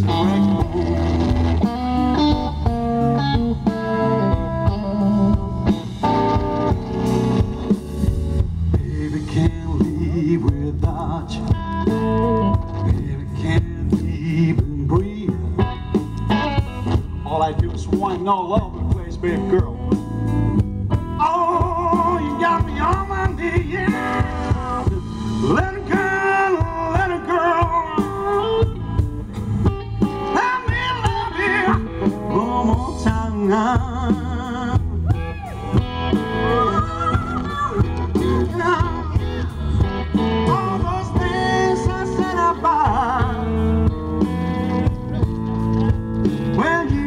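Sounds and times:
blues band playing: 0.0 - 47.0
man singing: 3.6 - 5.8, 8.7 - 16.0, 17.1 - 20.0, 21.0 - 28.9, 30.0 - 44.9, 46.3 - 47.0.

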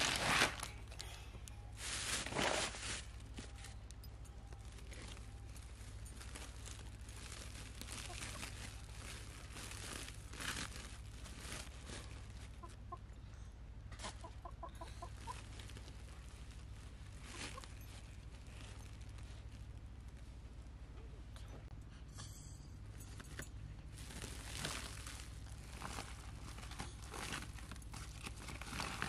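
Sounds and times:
plastic bags and cloth rustling: 0.0 - 13.1, 13.8 - 21.8, 22.8 - 29.0
hen clucking: 8.0 - 8.5, 12.4 - 13.2, 13.9 - 15.6.

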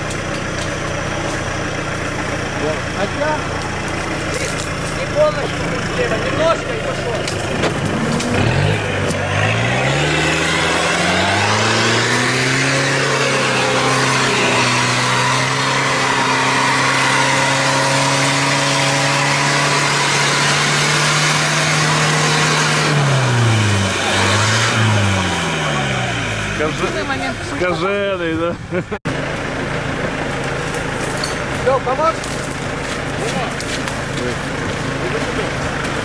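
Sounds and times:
car ploughing through mud: 0.0 - 27.6, 29.0 - 36.0
car engine revving: 0.0 - 28.1.

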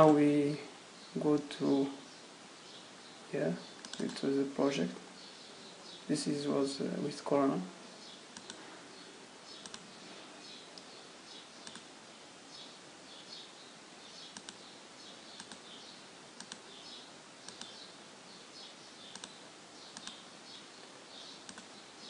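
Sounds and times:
faint high chirping: 0.0 - 22.0
computer mouse clicks: 3.8 - 4.2, 8.3 - 8.6, 9.6 - 9.8, 11.6 - 11.9, 14.3 - 14.6, 15.4 - 15.6, 16.4 - 16.6, 17.5 - 17.8, 19.1 - 20.2, 21.4 - 21.7.

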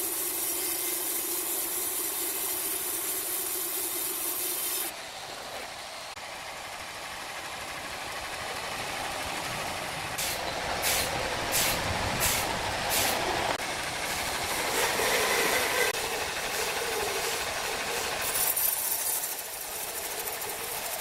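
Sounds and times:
band saw cutting log: 0.0 - 6.2, 10.2 - 21.0
sharp hissing bursts: 10.2 - 20.8.

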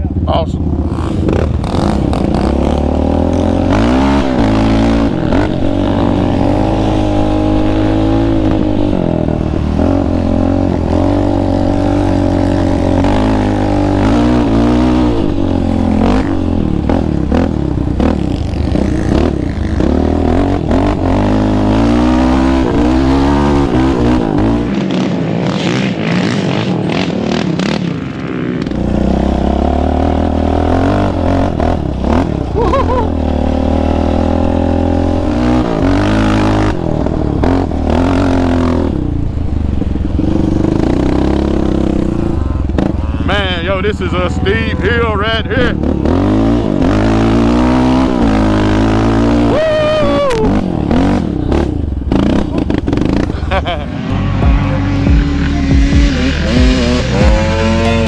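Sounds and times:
quad engine revving: 0.0 - 58.0.

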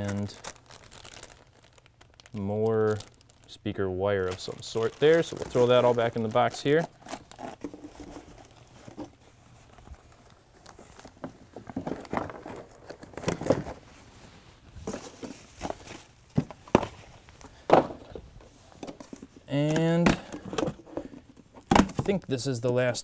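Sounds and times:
plastic bags crinkling: 0.0 - 14.0
items knocking when set down: 17.6 - 18.2.

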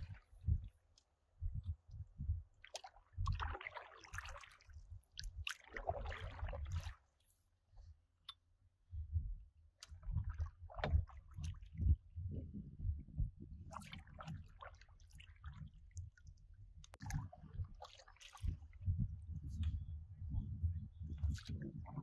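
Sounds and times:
dull low thumps: 0.0 - 0.8, 1.4 - 3.6, 8.9 - 14.5, 15.5 - 17.8, 18.4 - 22.0
canoe paddles in water: 2.6 - 7.1, 9.8 - 12.0, 13.6 - 16.0, 17.0 - 19.6
splashing and dripping water: 2.6 - 7.1, 9.8 - 12.0, 13.7 - 19.7.

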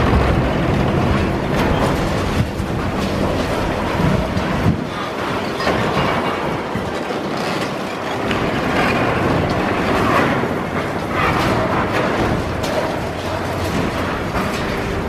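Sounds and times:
concrete crunching and cracking: 0.0 - 7.6
excavator running: 0.0 - 15.0.

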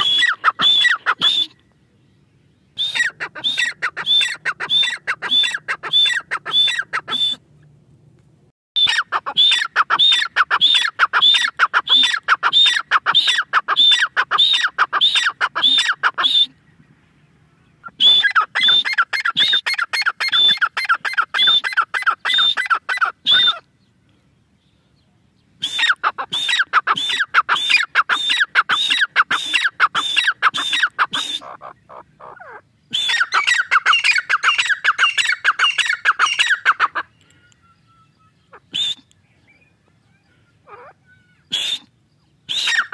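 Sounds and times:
francolin calling: 2.6 - 7.4, 25.6 - 42.9.

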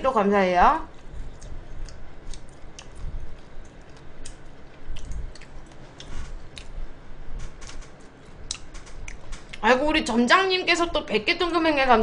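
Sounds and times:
close chewing: 1.0 - 6.8
wet mouth clicks and smacks: 1.3 - 6.8.

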